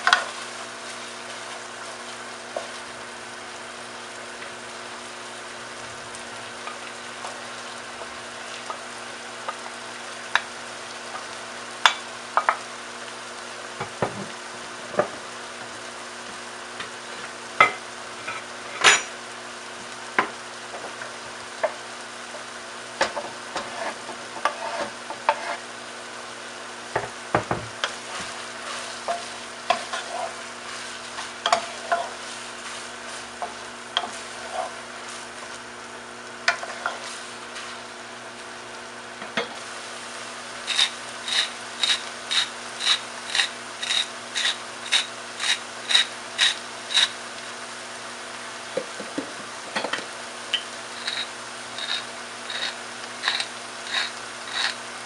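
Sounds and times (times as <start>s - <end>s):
meat sizzling in a pot: 0.0s - 55.0s
wooden spoon scraping a pan: 23.0s - 25.7s, 27.8s - 35.3s, 36.5s - 37.8s, 40.6s - 47.6s, 50.6s - 54.9s.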